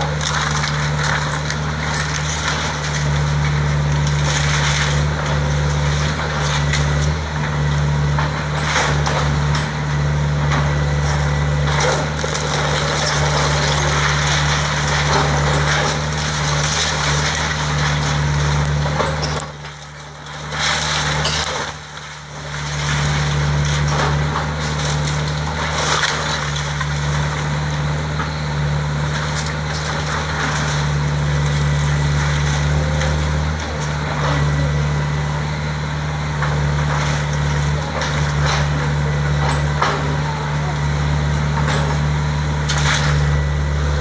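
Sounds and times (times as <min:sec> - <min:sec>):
falling debris: 0:00.0 - 0:09.8, 0:10.4 - 0:28.3, 0:29.0 - 0:34.8
wood cracking and crunching: 0:00.0 - 0:35.3, 0:36.2 - 0:44.0
excavator diesel engine running: 0:00.0 - 0:44.0.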